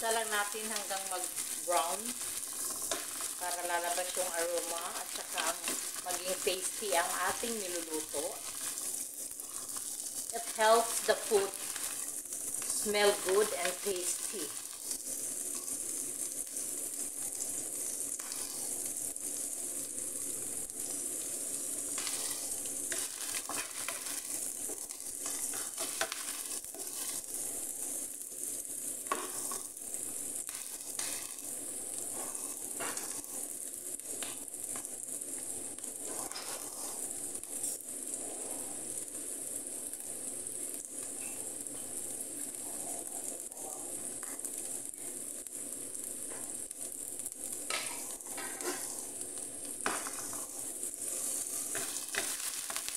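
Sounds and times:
crackles: 0.0s - 52.9s
onions sizzling in frying pan: 0.0s - 52.9s.

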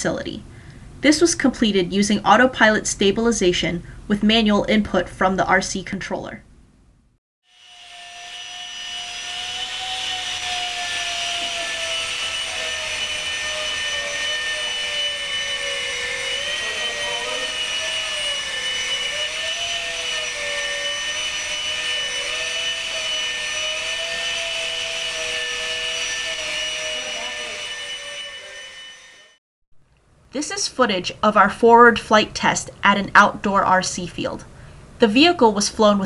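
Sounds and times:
drone electric fans whining: 7.5s - 29.4s.

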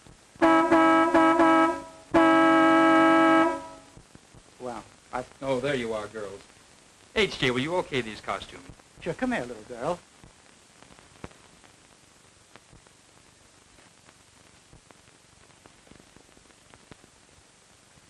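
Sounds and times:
film soundtrack hiss: 0.0s - 18.0s
faint clicks and pops: 4.0s - 5.4s, 6.4s - 7.5s, 8.4s - 9.1s, 9.9s - 18.0s.

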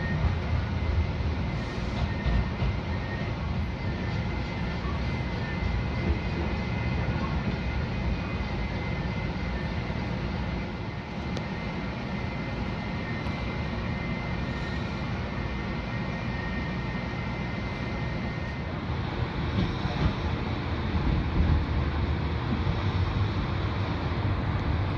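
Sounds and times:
light rail wheels rumbling: 0.0s - 24.9s.

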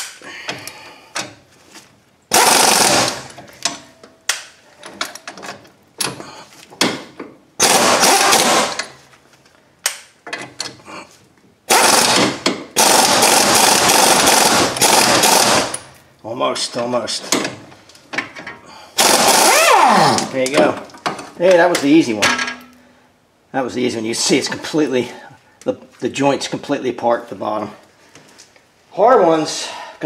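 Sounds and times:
impact wrench hammering: 2.3s - 3.9s, 6.8s - 8.9s, 11.7s - 15.9s, 19.0s - 20.3s.

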